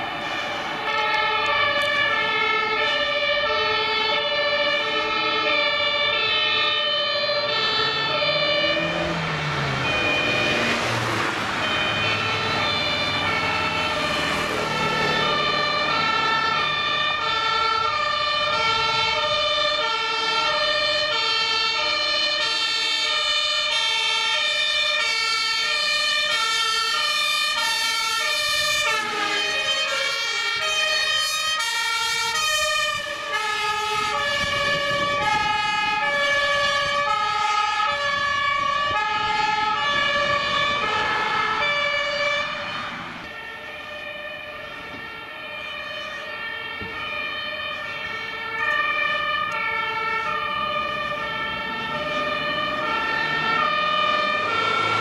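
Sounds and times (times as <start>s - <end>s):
two-tone emergency sirens: 0.0s - 55.0s.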